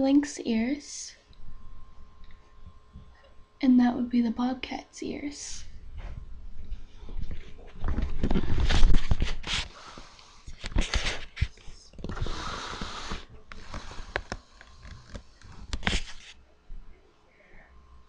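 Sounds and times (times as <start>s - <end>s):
rubbing or rustling: 6.8s - 9.8s, 10.5s - 16.4s.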